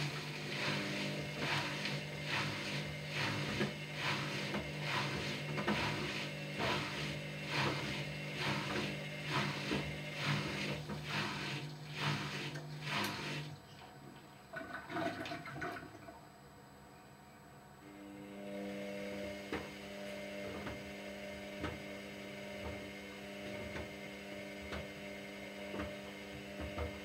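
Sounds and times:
drum tumbling laundry: 0.0s - 13.6s, 25.6s - 27.0s
motor hum: 0.0s - 16.5s, 17.8s - 27.0s.

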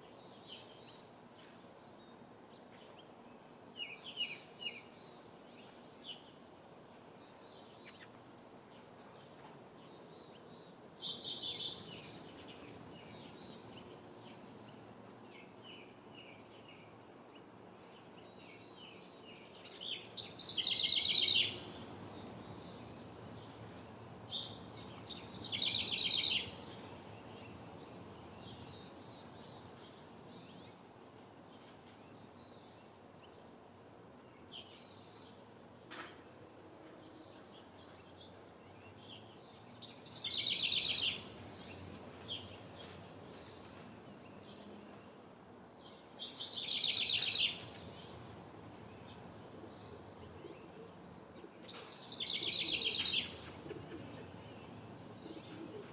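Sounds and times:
wren trilling song: 19.4s - 23.6s, 24.2s - 27.7s, 39.6s - 42.9s, 46.0s - 48.1s, 51.5s - 53.5s
background hiss: 36.6s - 55.9s.

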